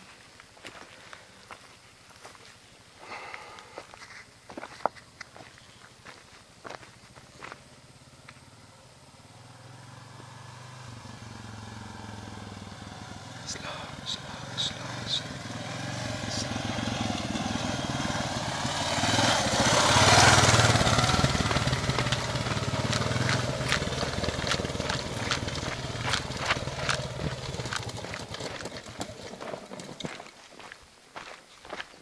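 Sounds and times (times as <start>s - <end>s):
motorcycle engine passing: 7.4s - 30.4s
stones and grit crunching: 21.5s - 32.0s.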